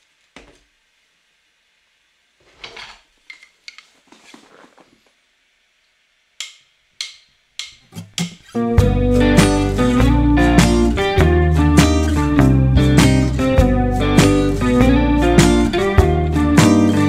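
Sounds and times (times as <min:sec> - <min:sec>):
fabric board rustling: 0:03.8 - 0:05.2.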